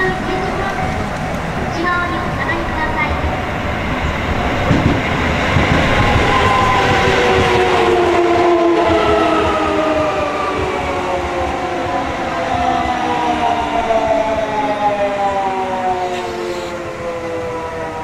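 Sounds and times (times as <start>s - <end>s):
electric train rumbling: 0.0s - 18.0s
train motor whine: 14.9s - 17.4s.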